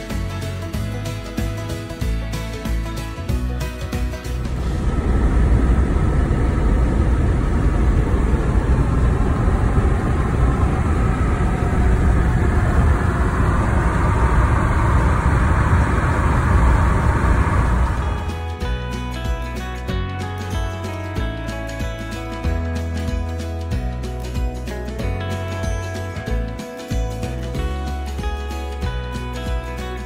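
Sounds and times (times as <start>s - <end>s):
car road noise from inside: 4.3s - 18.5s.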